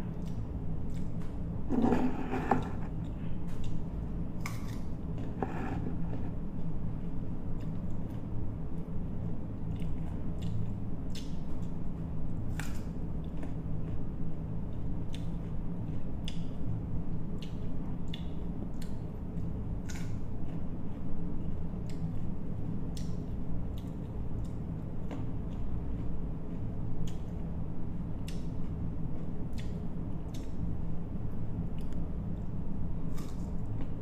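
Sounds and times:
low steady hum: 0:00.0 - 0:34.0
crunchy chewing: 0:00.1 - 0:03.8, 0:31.7 - 0:34.0.

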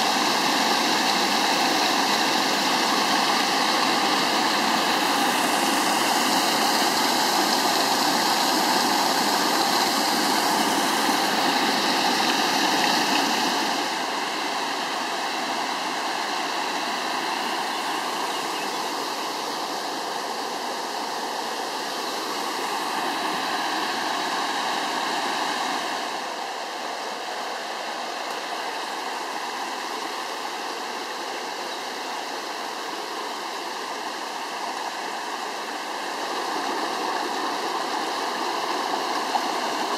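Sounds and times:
stream rushing over waterfall: 0:00.0 - 0:39.9.

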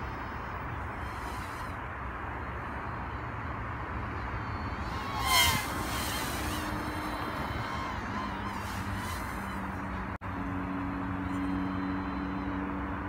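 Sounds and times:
quadcopter propellers whining: 0:00.0 - 0:02.0, 0:04.4 - 0:12.8.

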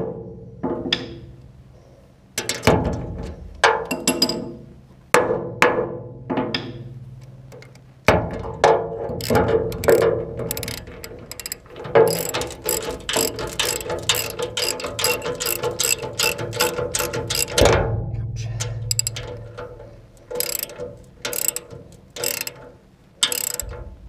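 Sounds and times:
ratchet wrench clicking: 0:09.2 - 0:17.7, 0:18.7 - 0:24.0.

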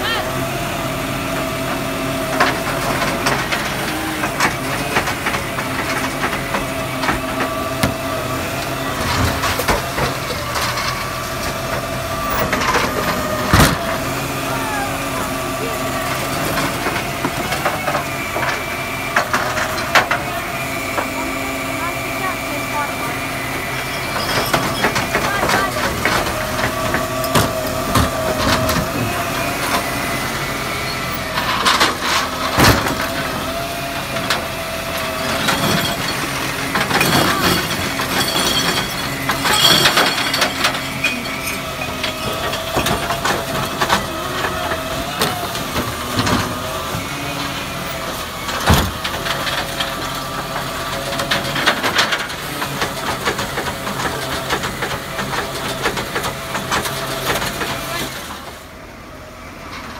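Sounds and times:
steady hydraulic whine: 0:00.0 - 0:59.9
truck engine running: 0:00.0 - 0:59.9
bins knocking and clattering: 0:02.3 - 0:14.1, 0:24.1 - 0:30.0, 0:31.1 - 0:47.1, 0:48.1 - 0:58.1.

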